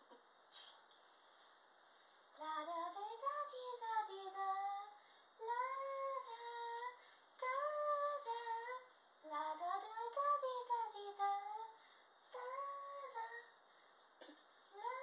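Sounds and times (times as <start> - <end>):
woman singing unaccompanied: 2.4 - 13.6, 14.7 - 15.0.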